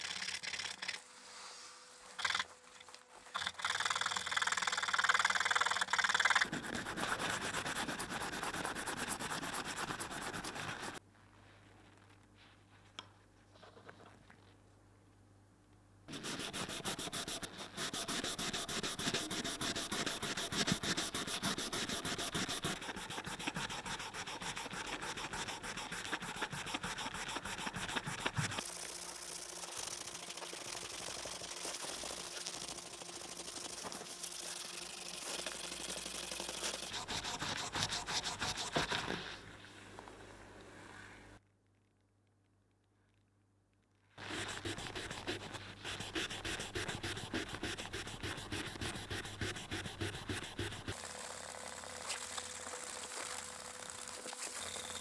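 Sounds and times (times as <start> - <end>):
hand sanding rasping strokes: 4.7 - 11.0, 16.1 - 39.4, 44.2 - 55.0.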